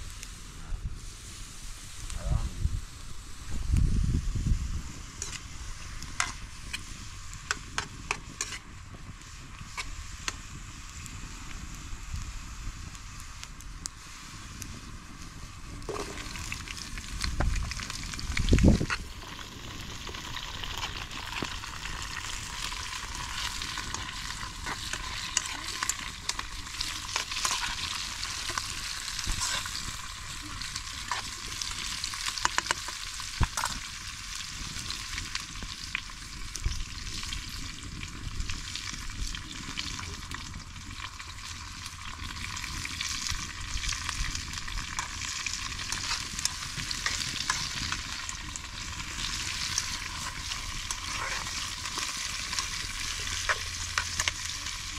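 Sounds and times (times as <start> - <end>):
vegetables sizzling in oil: 1.0 - 54.9.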